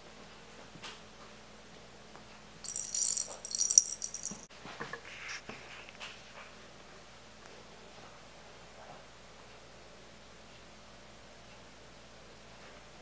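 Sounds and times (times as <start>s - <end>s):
small bell jingling: 2.6s - 4.5s.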